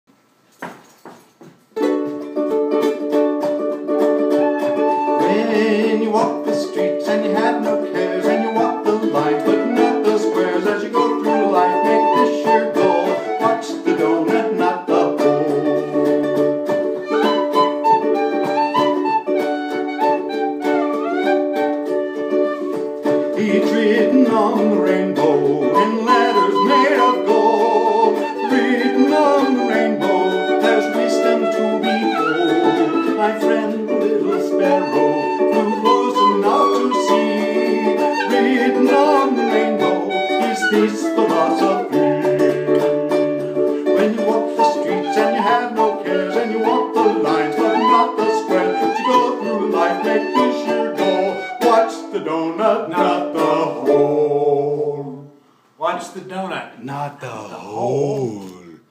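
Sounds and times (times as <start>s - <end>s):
ukulele strumming chords: 1.8s - 55.1s
whistle playing melody: 4.0s - 6.5s, 7.6s - 23.4s, 25.6s - 52.1s.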